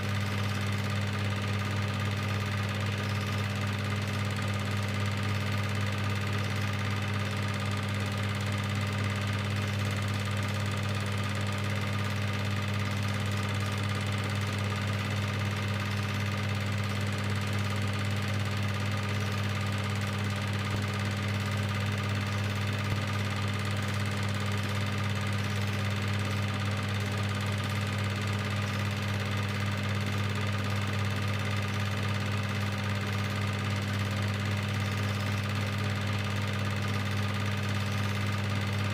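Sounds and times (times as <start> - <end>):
film projector motor humming: 0.0 - 38.9.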